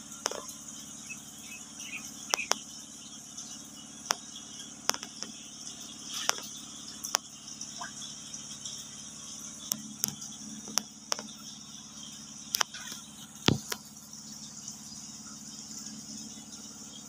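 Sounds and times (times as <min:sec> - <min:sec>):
low even hum: 0:00.0 - 0:17.0
night insects chirring: 0:00.0 - 0:17.0
sharp clicks and pops: 0:00.2 - 0:00.5, 0:02.2 - 0:02.8, 0:04.0 - 0:05.4, 0:06.1 - 0:07.3, 0:09.6 - 0:11.4, 0:12.5 - 0:13.9.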